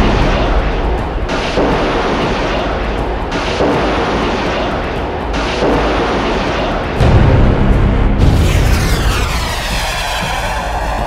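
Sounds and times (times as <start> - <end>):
rocket motor roaring: 8.4 - 11.0.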